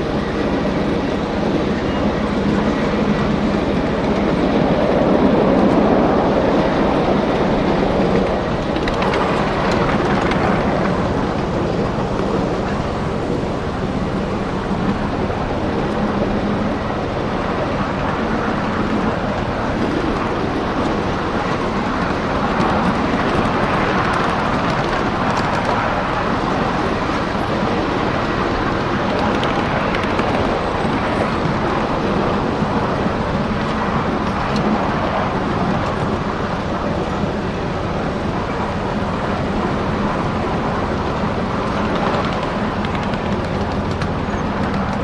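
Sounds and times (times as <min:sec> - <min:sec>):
miniature train running on track: 0:00.0 - 0:45.0.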